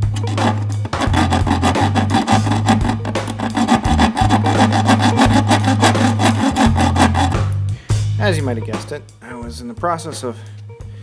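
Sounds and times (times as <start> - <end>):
saw rasping through sheet steel: 0.0 - 7.5.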